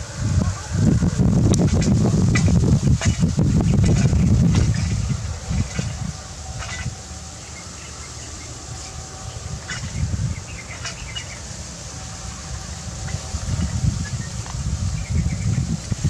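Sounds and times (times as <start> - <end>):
gusty wind on microphone: 0.0 - 16.0.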